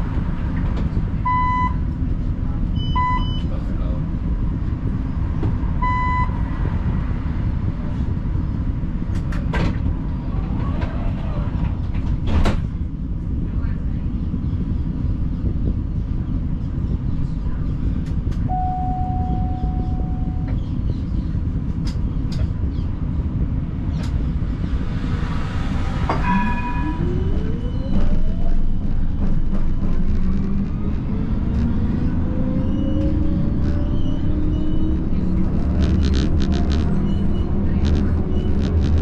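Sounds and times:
low rumble: 0.0s - 39.0s
tram motors whining: 15.2s - 39.0s
steady beep: 18.5s - 20.5s, 26.2s - 28.6s.

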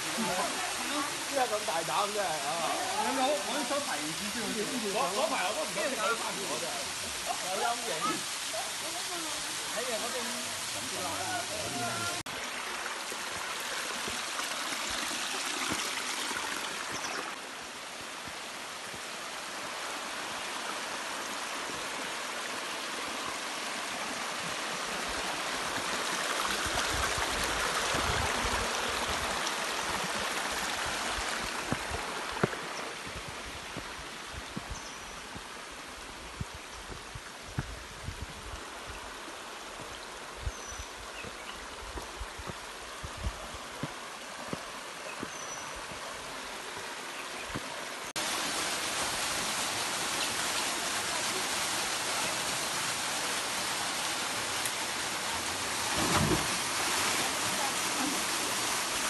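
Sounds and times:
waterfall splashing into pool: 0.0s - 17.6s, 19.7s - 34.0s, 47.6s - 59.0s.

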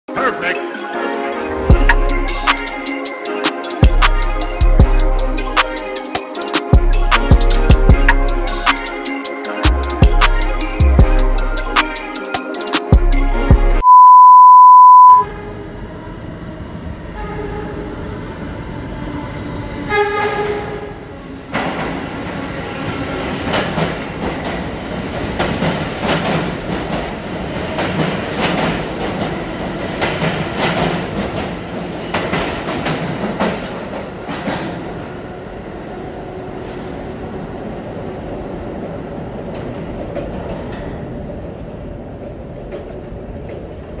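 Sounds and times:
train horn blasts: 19.9s - 20.9s.

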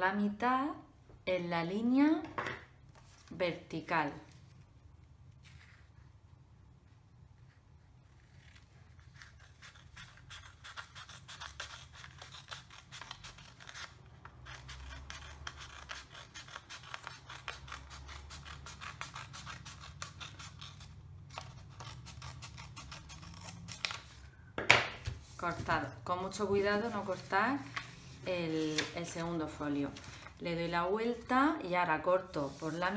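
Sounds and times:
scissors snipping paper: 9.0s - 24.1s.

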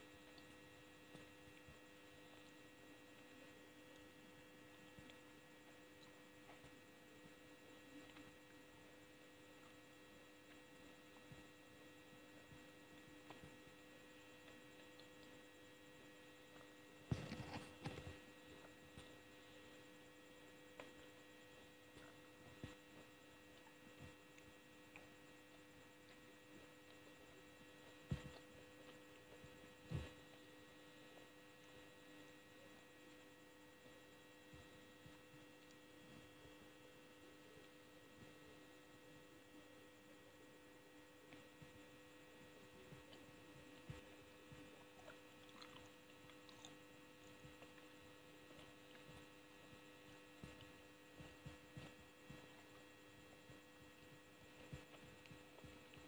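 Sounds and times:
electrical hum: 0.0s - 56.0s
mouth clicks and chewing: 14.4s - 15.5s, 42.9s - 52.8s.

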